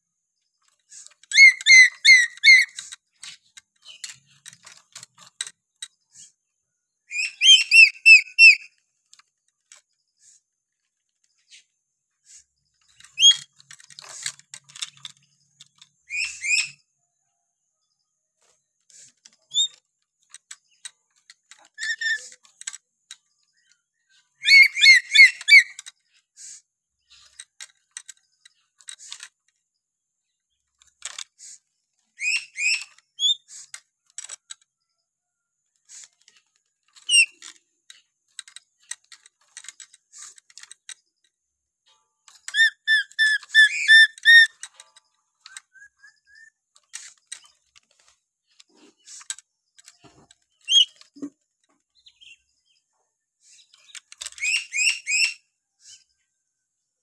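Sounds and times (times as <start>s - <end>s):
parrot whistled calls: 1.3s - 2.8s, 7.1s - 8.7s, 24.4s - 25.8s, 42.5s - 44.5s.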